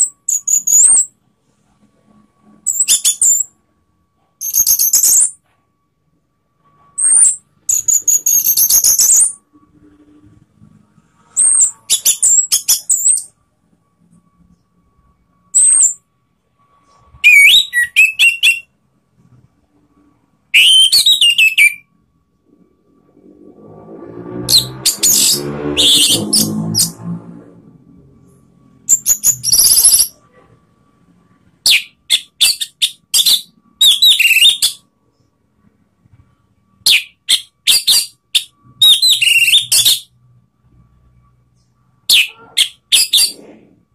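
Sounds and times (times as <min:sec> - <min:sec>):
thrush singing whistled phrases: 0:17.2 - 0:18.8, 0:20.5 - 0:21.9, 0:24.5 - 0:27.0, 0:31.7 - 0:34.8, 0:36.9 - 0:40.1.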